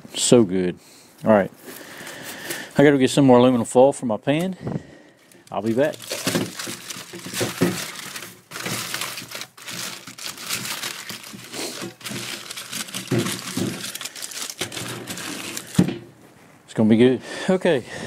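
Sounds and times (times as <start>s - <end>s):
aluminum foil crinkling: 5.2s - 16.0s.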